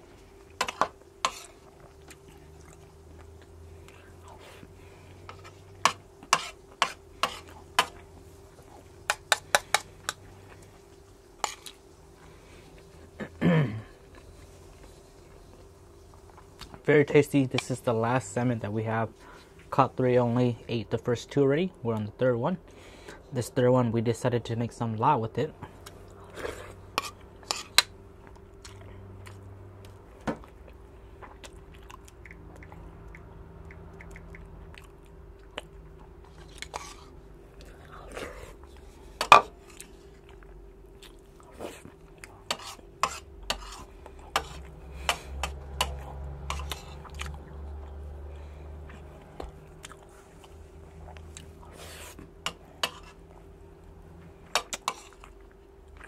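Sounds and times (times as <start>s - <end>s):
faint steady hum: 0.0s - 56.0s
person chewing: 0.6s - 8.6s, 11.4s - 11.8s, 25.8s - 53.5s, 54.5s - 56.0s.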